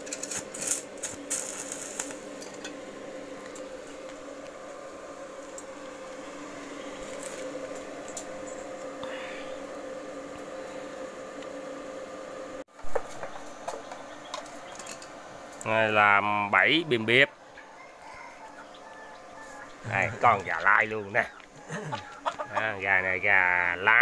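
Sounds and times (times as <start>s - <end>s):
welding arc crackling: 0.0s - 11.5s
steady electrical hum: 0.0s - 24.0s.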